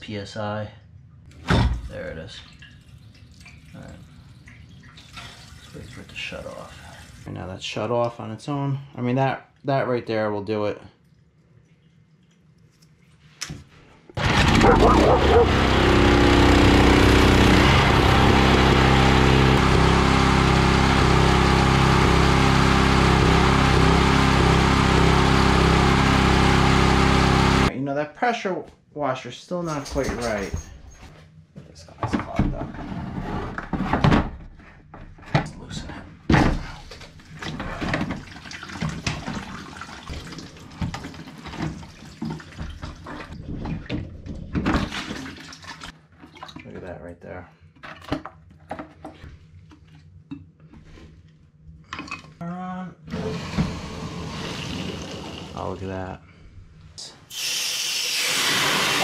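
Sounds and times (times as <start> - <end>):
small engine running: 14.2 - 27.7, 53.2 - 55.9
water splashing into plastic bucket: 37.3 - 44.0, 44.6 - 46.7
hissing water jet spraying: 57.3 - 59.0.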